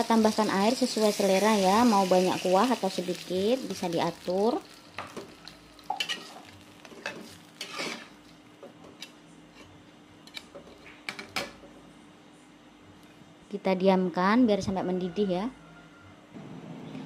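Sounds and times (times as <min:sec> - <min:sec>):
metal utensils scraping a wok: 0:06.0 - 0:08.2.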